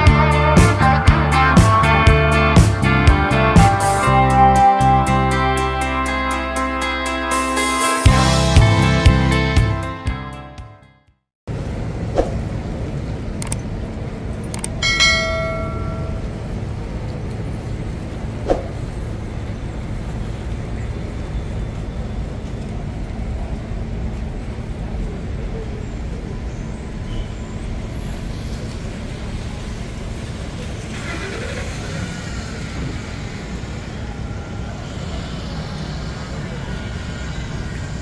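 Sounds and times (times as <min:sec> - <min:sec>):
traffic on wet street: 0:11.5 - 0:38.0.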